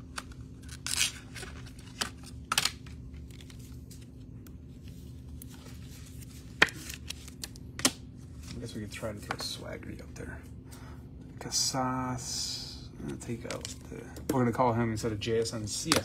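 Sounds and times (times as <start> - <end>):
cards rustling and sliding: 0.0 - 9.4
faint steady hum: 0.0 - 16.0.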